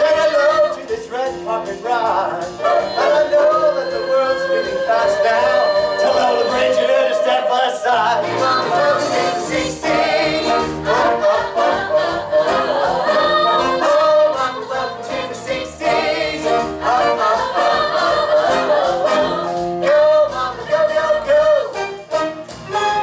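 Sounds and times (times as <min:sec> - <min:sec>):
cast singing show tune: 0:00.0 - 0:23.0
instrumental accompaniment: 0:00.0 - 0:23.0.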